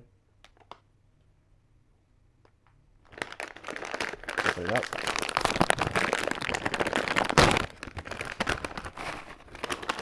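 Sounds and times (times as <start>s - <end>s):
bag seal popping: 3.0s - 10.0s
foil bag crinkling: 3.0s - 10.0s.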